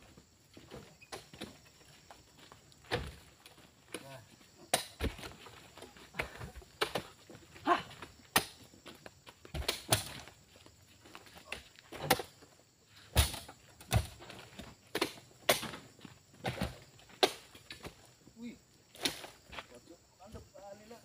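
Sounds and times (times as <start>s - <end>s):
sharp knocks and thuds: 2.8s - 3.3s, 4.7s - 7.4s, 9.4s - 10.3s, 13.1s - 18.0s.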